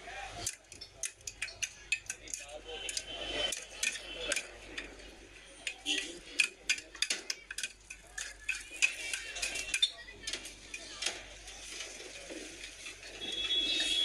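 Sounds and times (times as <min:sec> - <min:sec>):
metal spoons clinking against bowls: 0:00.4 - 0:05.0, 0:05.6 - 0:10.1.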